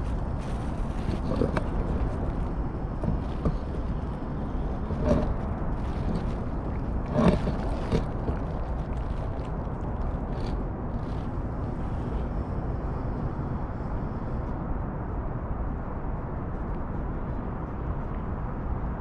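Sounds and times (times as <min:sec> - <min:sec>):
cat eating from metal plate: 0:00.0 - 0:11.8
steady low rumble: 0:00.0 - 0:19.0.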